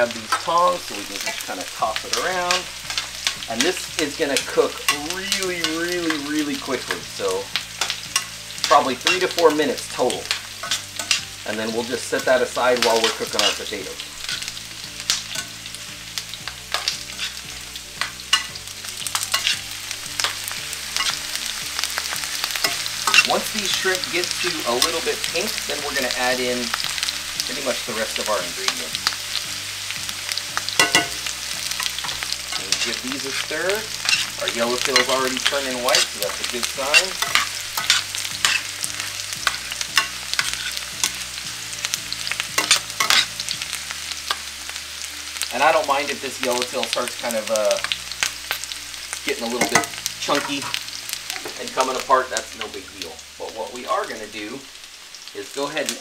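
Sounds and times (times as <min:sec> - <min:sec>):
seafood sizzling in a skillet: 0:00.0 - 0:56.0
metal tongs scraping pan: 0:01.1 - 0:15.7, 0:16.7 - 0:29.2, 0:30.6 - 0:41.2, 0:42.2 - 0:44.7, 0:49.4 - 0:52.0
tongs clinking against pan: 0:07.8 - 0:09.3, 0:18.0 - 0:19.6, 0:30.8 - 0:31.2, 0:34.0 - 0:38.7, 0:42.6 - 0:43.3, 0:49.6 - 0:50.8.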